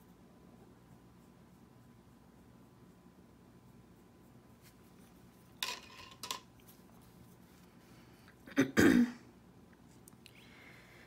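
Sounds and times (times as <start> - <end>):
person clearing throat: 8.5 - 9.3.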